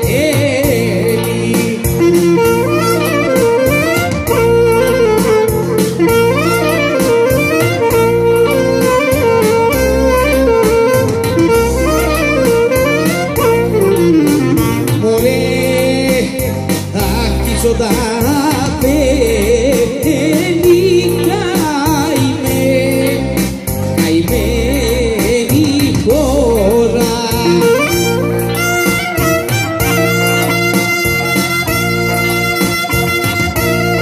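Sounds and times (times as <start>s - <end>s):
keyboard and guitar accompaniment: 0.0s - 34.0s
folk clarinet melody: 1.9s - 15.8s, 27.4s - 34.0s.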